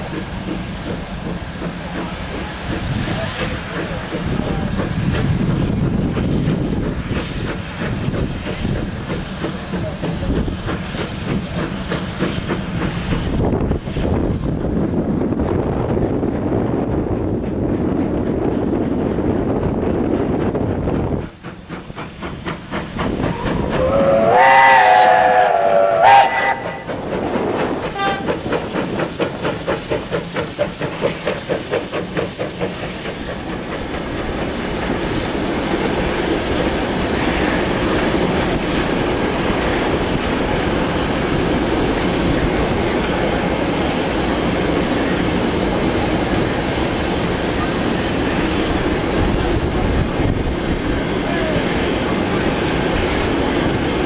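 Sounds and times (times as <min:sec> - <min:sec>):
train rumbling past: 0:00.0 - 0:54.0
steam locomotive whistle: 0:23.2 - 0:27.0, 0:27.8 - 0:28.5.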